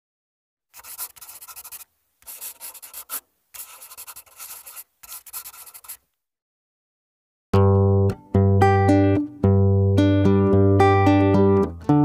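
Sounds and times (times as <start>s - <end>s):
marker scribbling on paper: 0.8s - 6.1s.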